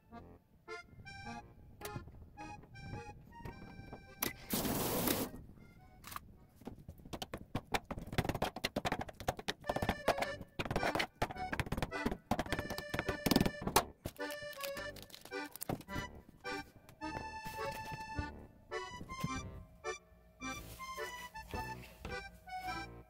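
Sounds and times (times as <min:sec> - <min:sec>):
background music: 0:00.0 - 0:06.3, 0:09.6 - 0:23.0
short hiss: 0:04.4 - 0:05.4.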